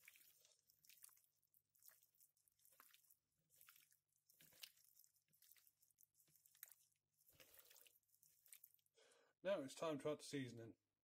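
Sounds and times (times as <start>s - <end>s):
squelches of hand kneading meat: 0.0s - 9.1s.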